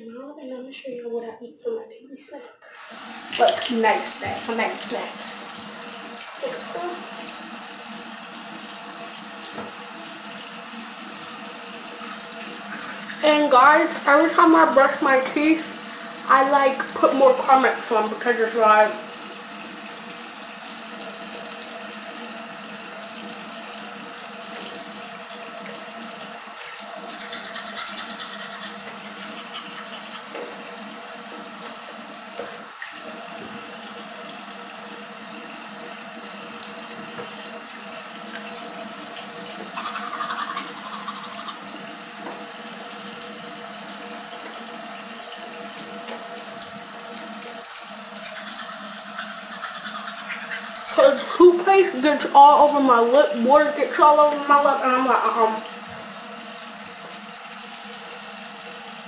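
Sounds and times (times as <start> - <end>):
tap running into sink: 6.0 - 10.5, 35.8 - 37.6, 38.2 - 42.5.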